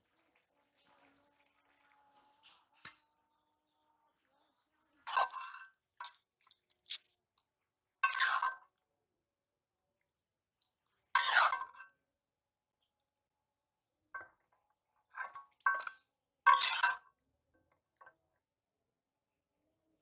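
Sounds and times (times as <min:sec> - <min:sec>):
spatula scraping a metal wok: 0:05.0 - 0:05.8, 0:08.0 - 0:08.6, 0:11.2 - 0:11.8, 0:15.2 - 0:17.0.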